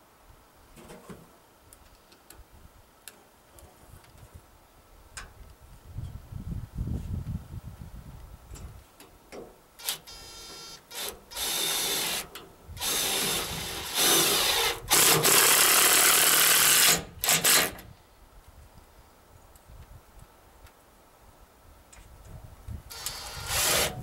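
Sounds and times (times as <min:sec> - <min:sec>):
cordless drill driving into log: 0:09.8 - 0:17.9, 0:22.9 - 0:24.0.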